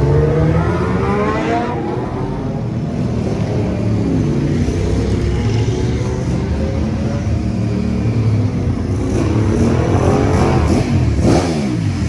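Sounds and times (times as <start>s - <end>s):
motorcycle engine rumbling: 0.0s - 12.0s.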